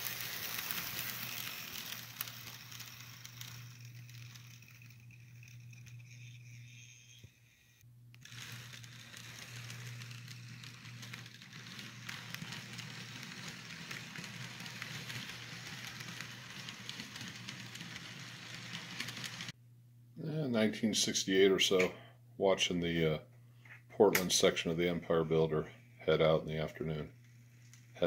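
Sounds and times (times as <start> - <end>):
model train wheels rolling on track: 0.0 - 19.6
low hum: 0.0 - 23.6.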